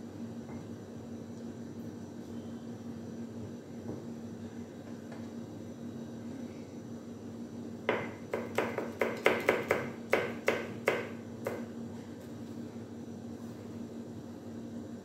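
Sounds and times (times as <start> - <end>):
knife chopping on cutting board: 7.9 - 11.7.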